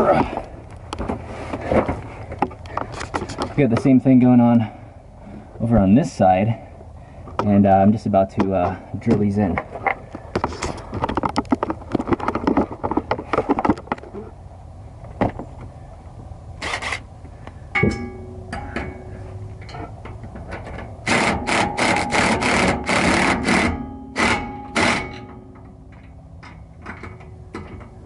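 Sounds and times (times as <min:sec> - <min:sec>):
handling knocks and rustling: 0:08.4 - 0:14.4, 0:25.2 - 0:28.0
impact driver whirring: 0:21.1 - 0:25.2.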